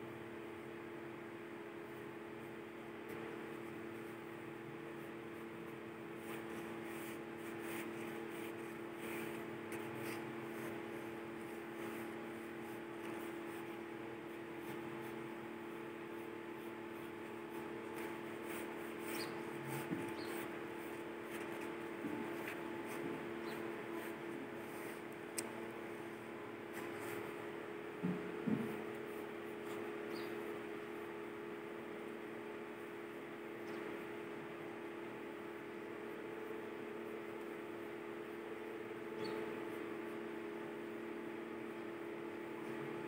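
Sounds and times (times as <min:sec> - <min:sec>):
steady low hum: 0:00.0 - 0:43.0
pencil scratching on paper: 0:03.2 - 0:25.2, 0:28.6 - 0:30.5.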